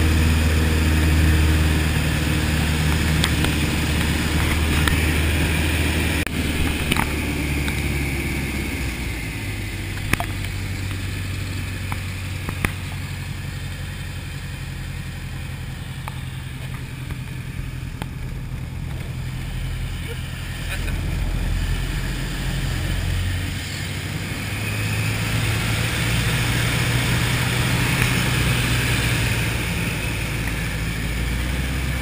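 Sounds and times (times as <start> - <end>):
aircraft piston engine and propeller: 0.0 - 32.0.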